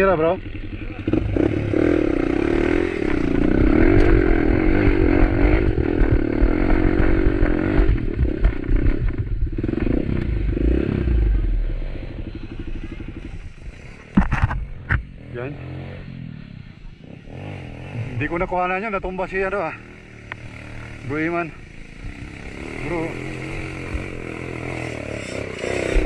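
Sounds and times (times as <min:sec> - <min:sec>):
motorcycle engine labouring: 0:00.0 - 0:26.0
clattering and scraping: 0:14.1 - 0:15.0.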